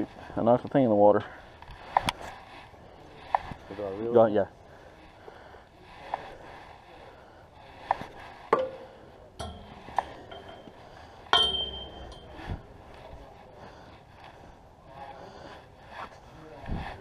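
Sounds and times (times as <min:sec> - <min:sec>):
tackle clinking on metal railing: 0:08.5 - 0:12.8
high metallic ringing: 0:08.6 - 0:12.8.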